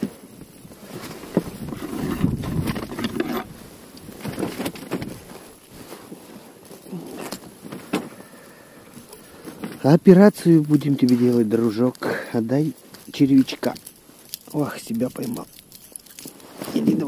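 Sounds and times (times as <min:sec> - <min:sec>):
handling rustles and clicks: 0:00.0 - 0:17.0
wind buffeting microphone: 0:00.5 - 0:04.4.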